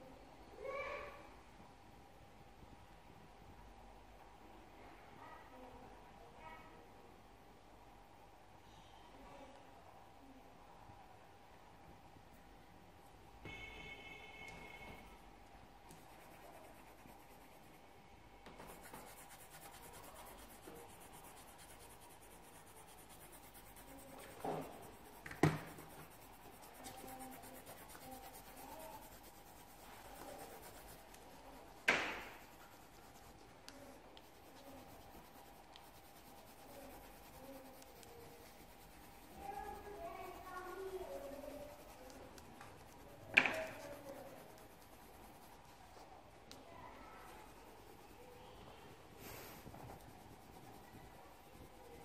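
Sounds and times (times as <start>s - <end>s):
coloured pencil scratching on paper: 13.5s - 15.3s, 15.9s - 46.1s, 46.9s - 52.0s.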